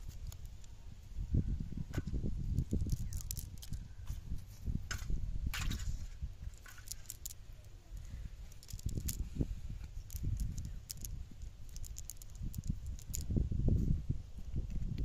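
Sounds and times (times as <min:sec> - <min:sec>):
light clicks and rattles: 0:00.0 - 0:00.8, 0:02.0 - 0:04.2, 0:04.9 - 0:13.4.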